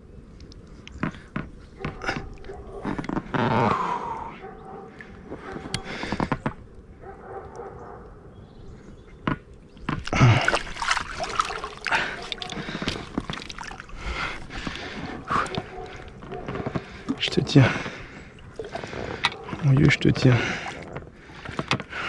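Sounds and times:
water splashing: 0:09.8 - 0:21.6.

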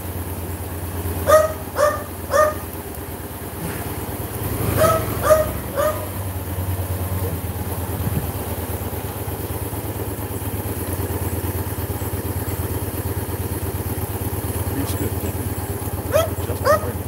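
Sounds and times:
motorcycle engine running: 0:00.0 - 0:17.0
dog barking: 0:01.2 - 0:02.7, 0:04.7 - 0:06.2, 0:16.1 - 0:17.0.

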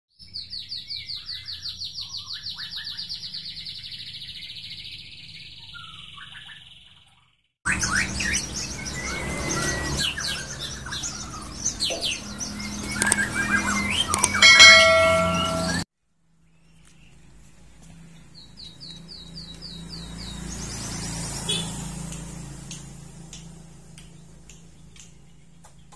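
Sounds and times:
songbirds chirping and whistling: 0:00.2 - 0:15.8, 0:18.1 - 0:22.9
falling bird chirps: 0:00.4 - 0:15.8
click: 0:13.0 - 0:13.2, 0:14.1 - 0:14.4
ringing bell-like chime: 0:14.2 - 0:15.8.

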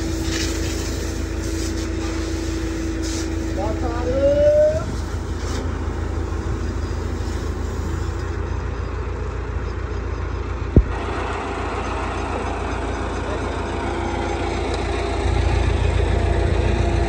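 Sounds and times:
water spraying from hose: 0:00.0 - 0:08.5
truck engine running: 0:00.0 - 0:17.0
sharp thump: 0:10.7 - 0:11.0.

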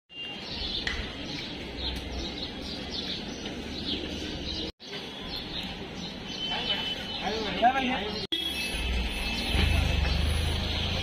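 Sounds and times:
birds chirping: 0:00.1 - 0:08.3
street background noise: 0:00.1 - 0:11.0.

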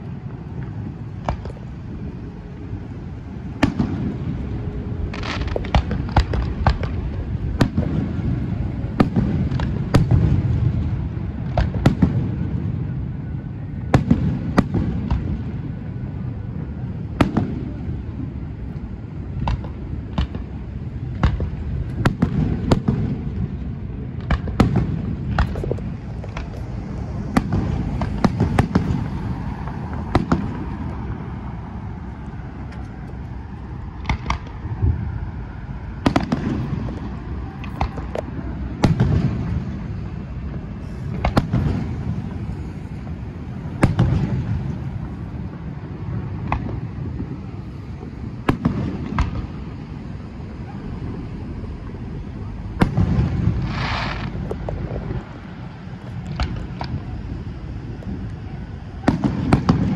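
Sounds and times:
fireworks bangs: 0:00.0 - 0:59.9.

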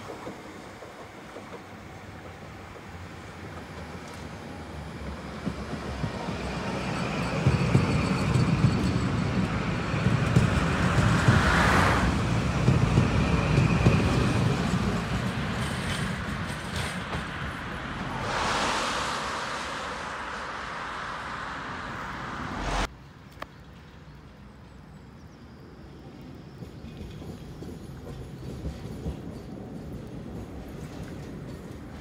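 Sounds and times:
tram wheels rumbling on rails: 0:00.0 - 0:22.9, 0:26.0 - 0:32.0
brief hiss: 0:18.0 - 0:22.8.

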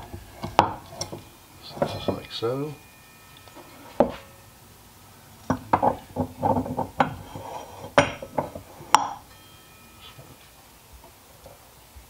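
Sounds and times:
metal hub clinking and clanking: 0:00.0 - 0:04.6, 0:05.4 - 0:09.4.

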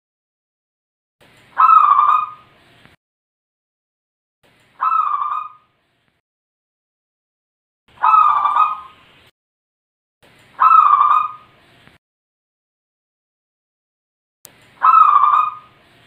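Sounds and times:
dove cooing: 0:04.8 - 0:05.6, 0:08.0 - 0:09.0, 0:10.6 - 0:11.4, 0:14.8 - 0:15.7.

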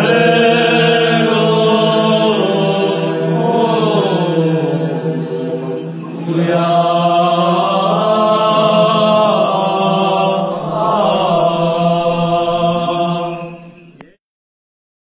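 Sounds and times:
men's choir chanting a hymn: 0:00.0 - 0:14.2.

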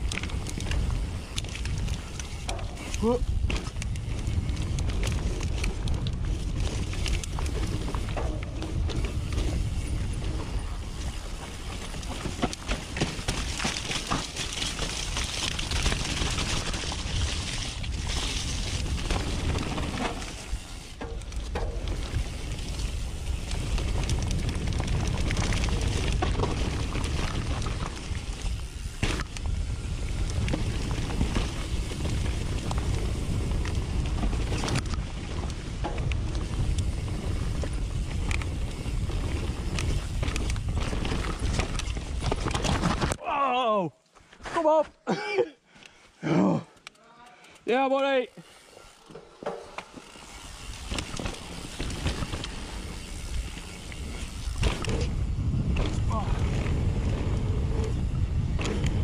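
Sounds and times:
wind buffeting microphone: 0:00.0 - 0:12.1, 0:21.6 - 0:42.6, 0:50.2 - 0:59.0
bike tyres and frame rattling: 0:00.0 - 0:43.3, 0:45.9 - 0:59.0
wind on microphone: 0:53.1 - 0:59.0.

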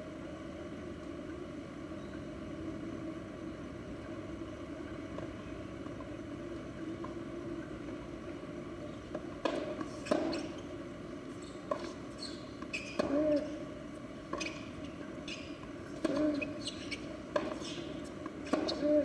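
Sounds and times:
low background hum: 0:00.0 - 0:19.0
tennis ball impacts: 0:09.1 - 0:10.5, 0:16.0 - 0:16.4, 0:17.3 - 0:18.8.

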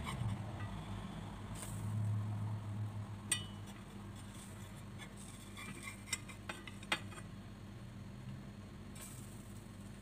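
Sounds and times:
faint steady hum: 0:00.0 - 0:10.0
metal spatula scraping frying pan: 0:04.1 - 0:06.4.

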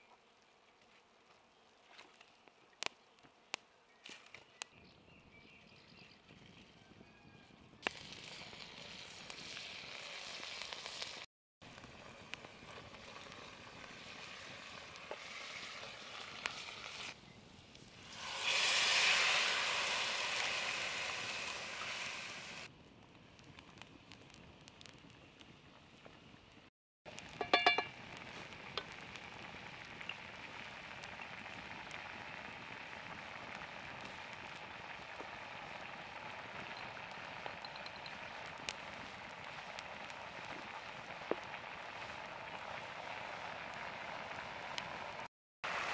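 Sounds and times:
food sizzling in a pan: 0:07.9 - 0:17.2, 0:17.9 - 0:22.7, 0:27.1 - 0:45.9
liquid poured into hot pan hissing: 0:12.0 - 0:17.2, 0:18.0 - 0:22.7.

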